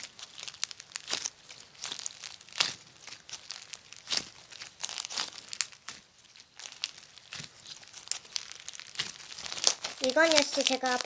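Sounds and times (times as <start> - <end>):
slime crackling and snapping: 0.0 - 11.0.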